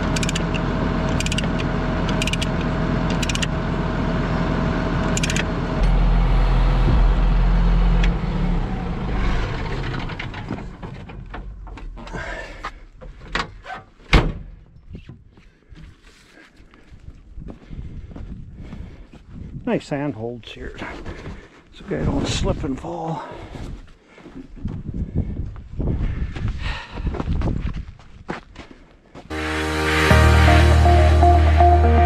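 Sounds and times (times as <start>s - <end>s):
engine winding down: 0.0s - 12.6s
diesel engine idling: 0.0s - 12.9s
loud bang: 5.8s - 10.8s.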